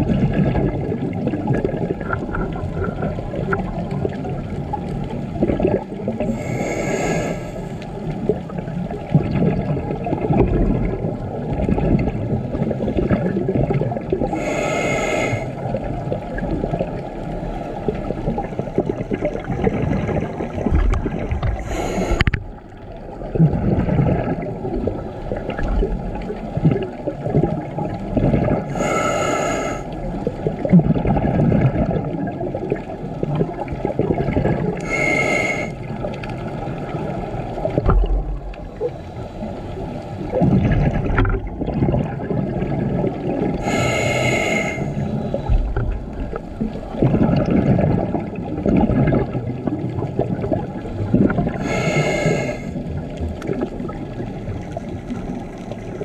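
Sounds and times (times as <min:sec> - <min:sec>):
exhaled air bubbling: 0:00.0 - 0:56.0
regulator hissing inhale: 0:06.3 - 0:07.8, 0:14.3 - 0:15.6, 0:21.6 - 0:22.4, 0:28.7 - 0:29.9, 0:34.8 - 0:35.8, 0:43.6 - 0:45.5, 0:51.6 - 0:52.8.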